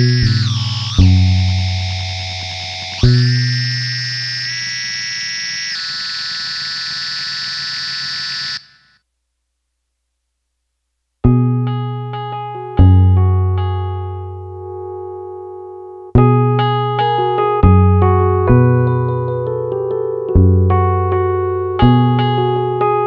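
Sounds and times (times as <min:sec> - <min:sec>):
keyboard plucked notes: 0:00.0 - 0:04.0, 0:11.3 - 0:23.0
distorted guitar chords ringing: 0:00.0 - 0:08.9, 0:11.3 - 0:23.0.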